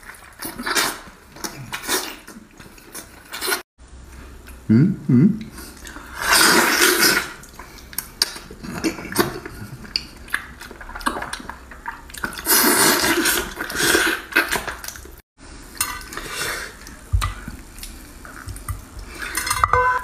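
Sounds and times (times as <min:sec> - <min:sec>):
loud slurping: 0:06.0 - 0:07.4.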